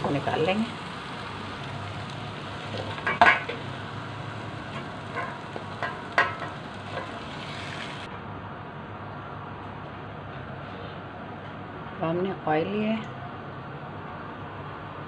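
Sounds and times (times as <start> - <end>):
faint frying sizzle: 0.0 - 8.1.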